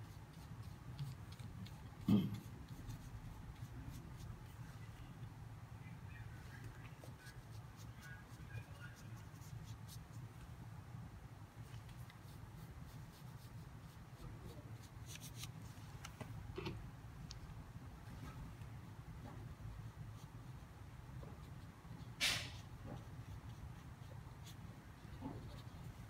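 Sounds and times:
paintbrush scratching on paper: 0.0 - 5.1, 6.5 - 10.4, 11.6 - 15.6, 19.5 - 26.0.

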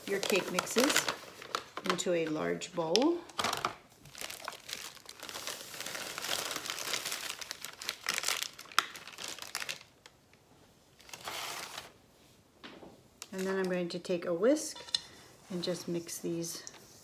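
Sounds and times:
plastic bag crinkling: 0.0 - 10.2, 11.0 - 12.0.

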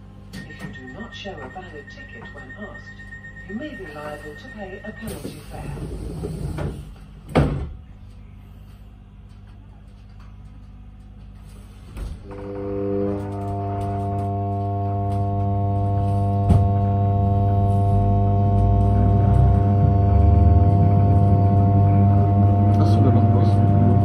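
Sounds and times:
train traction motor hum: 0.0 - 24.0
train doors shutting: 5.0 - 7.8, 11.3 - 23.9.

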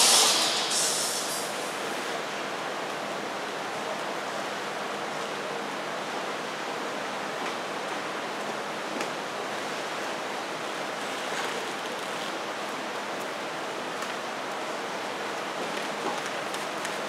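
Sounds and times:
steady rushing hall noise: 0.0 - 3.5.

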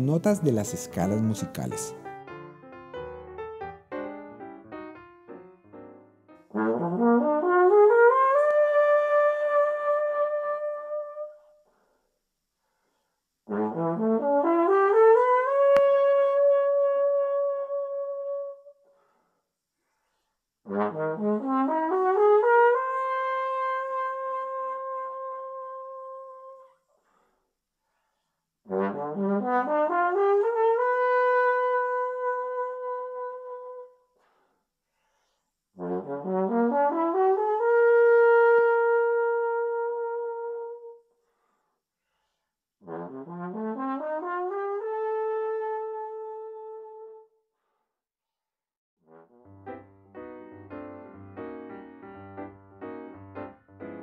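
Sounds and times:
trombone playing: 6.4 - 11.4, 13.5 - 18.6, 20.7 - 26.6, 28.7 - 33.9, 35.8 - 41.0, 42.8 - 47.2, 49.0 - 51.5.

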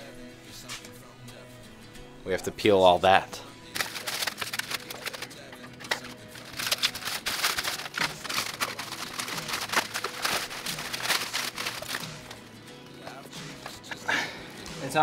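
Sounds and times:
background music: 0.0 - 15.0
plastic film peeling and crackling: 3.7 - 12.4.

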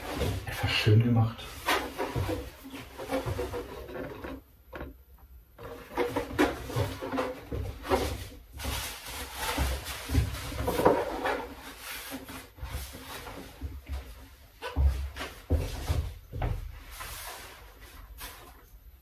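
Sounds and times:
rubbing and rustling of handling: 0.0 - 19.0.

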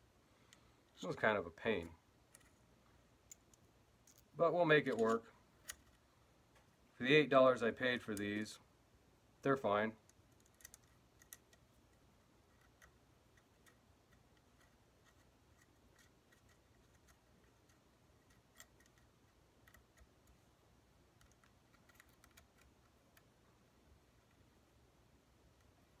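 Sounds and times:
small metal clicks: 10.0 - 20.4, 21.2 - 23.3.

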